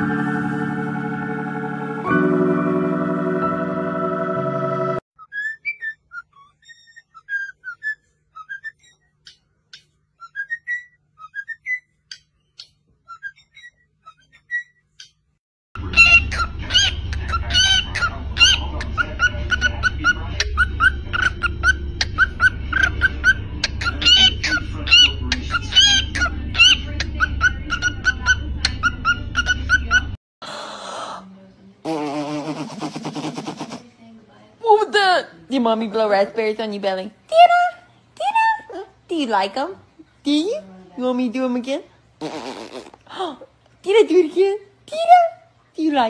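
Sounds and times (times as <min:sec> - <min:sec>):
cockatiels chirping and whistling: 0:05.2 - 0:09.0, 0:10.2 - 0:15.2, 0:15.8 - 0:30.1.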